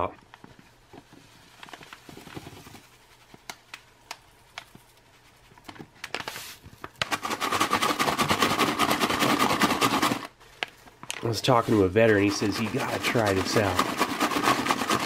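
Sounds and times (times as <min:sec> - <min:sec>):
dried fruit rattling in pouch: 0:11.0 - 0:15.0.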